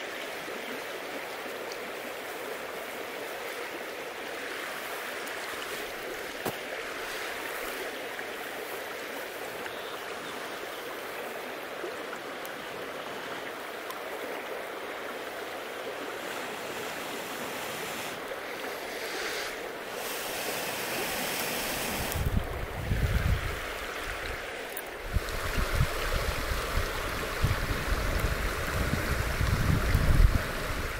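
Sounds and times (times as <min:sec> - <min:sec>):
rushing water: 0:00.0 - 0:30.9.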